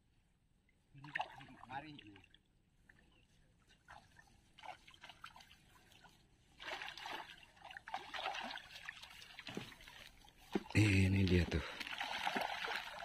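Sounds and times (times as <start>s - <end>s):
water trickling and splashing: 1.0s - 13.0s.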